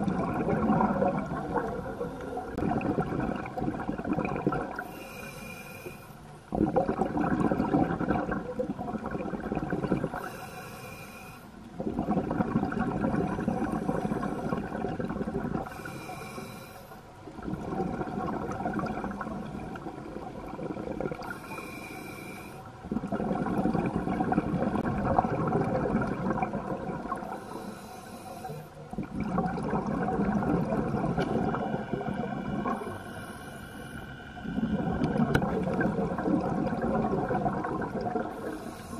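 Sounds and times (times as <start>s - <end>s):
exhaled bubbles rushing: 0.0s - 4.9s, 6.5s - 10.4s, 11.7s - 15.9s, 17.3s - 21.5s, 22.8s - 27.4s, 28.8s - 33.0s, 34.4s - 38.7s
regulator hissing inhale: 4.8s - 6.2s, 10.2s - 11.6s, 15.7s - 17.1s, 21.2s - 22.7s, 27.3s - 28.8s, 32.6s - 34.7s, 38.3s - 38.9s.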